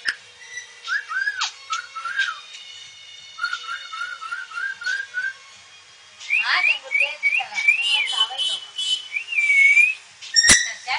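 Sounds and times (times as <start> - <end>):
cockatoo whistling: 0.5 - 2.4, 3.4 - 5.4, 6.3 - 10.6.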